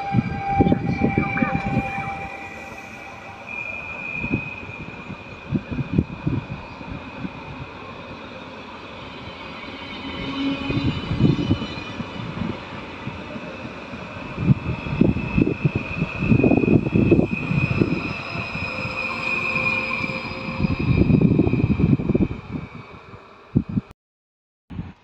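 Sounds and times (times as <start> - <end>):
steady high whine: 0.2 - 6.6.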